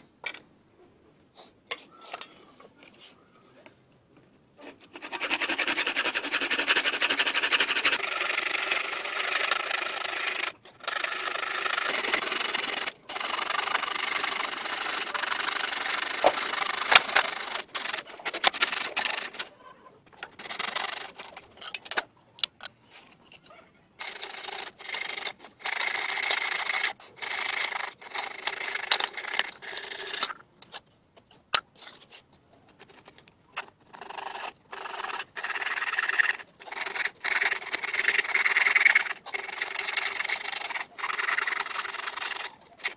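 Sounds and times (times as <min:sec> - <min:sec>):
hand saw cutting wood: 0:04.6 - 0:19.5, 0:20.2 - 0:21.5, 0:24.0 - 0:30.3, 0:33.9 - 0:42.9.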